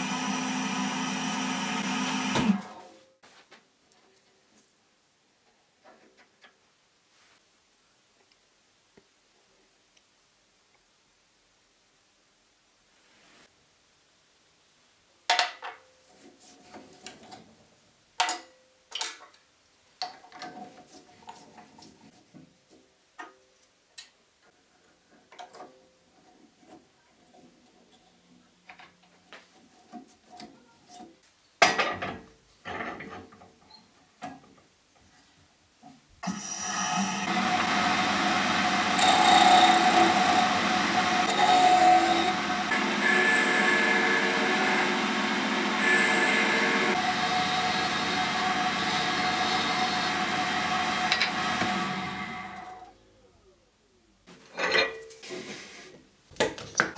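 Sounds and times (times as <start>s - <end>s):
tool cutting spinning wood: 0.0s - 2.7s, 36.2s - 52.8s
wood lathe running: 0.0s - 2.7s, 36.2s - 52.8s.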